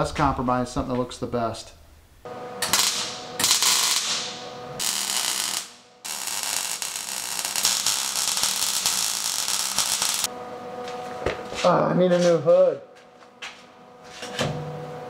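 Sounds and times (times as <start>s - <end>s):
welding arc crackling: 2.6s - 10.3s.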